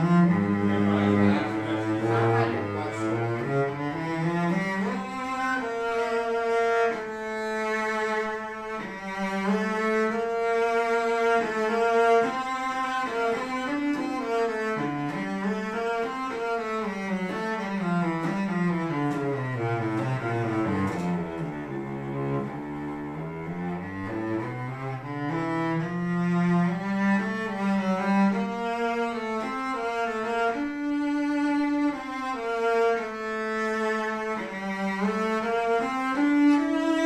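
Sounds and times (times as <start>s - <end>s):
solo cello melody: 0.0s - 37.0s.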